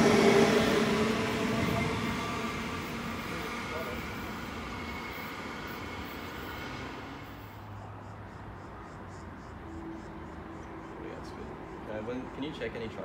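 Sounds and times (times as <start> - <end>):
distant train rumble: 0.0 - 7.9.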